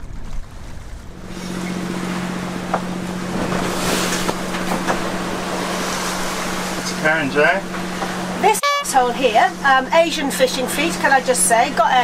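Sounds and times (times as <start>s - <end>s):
wind and water rushing: 0.0s - 8.6s.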